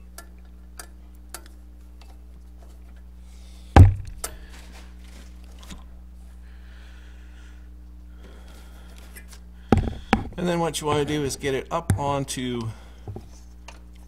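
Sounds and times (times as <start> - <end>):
steady low hum: 0.0 - 14.0
heavy thump: 3.8 - 4.2, 9.7 - 10.4.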